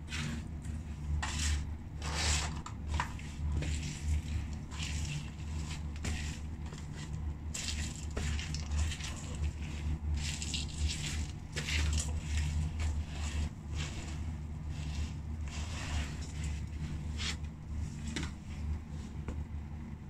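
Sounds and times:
steady low hum: 0:00.0 - 0:20.0
fries crunching underfoot on tiles: 0:00.1 - 0:19.2.

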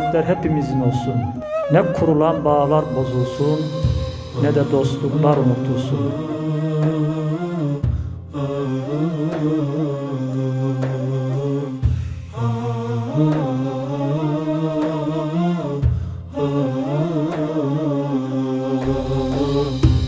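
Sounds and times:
voices humming a slow melody: 0:00.0 - 0:11.8, 0:12.4 - 0:20.0
low sustained drone: 0:02.4 - 0:07.8, 0:18.7 - 0:20.0.

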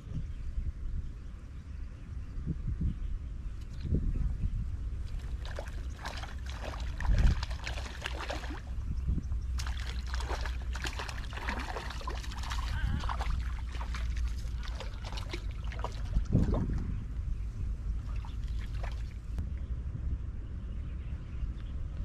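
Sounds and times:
steady low rumble: 0:00.0 - 0:22.0
fish splashing at water surface: 0:05.2 - 0:08.7, 0:09.5 - 0:16.3.

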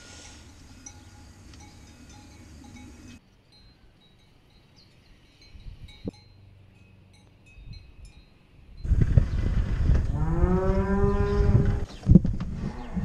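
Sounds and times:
faint cowbells ringing: 0:00.0 - 0:09.0.

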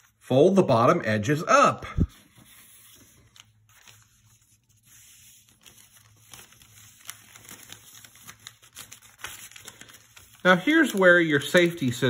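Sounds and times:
newspaper rustling and crinkling: 0:02.0 - 0:12.0.

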